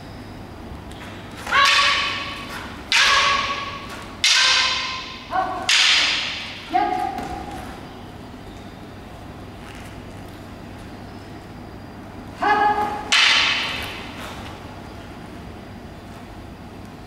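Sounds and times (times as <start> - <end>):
wooden swords clacking: 0.9 - 7.6, 13.0 - 14.6.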